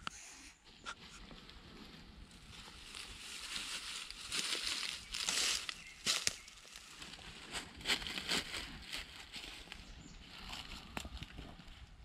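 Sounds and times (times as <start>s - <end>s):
rustling and crinkling: 0.7s - 12.0s.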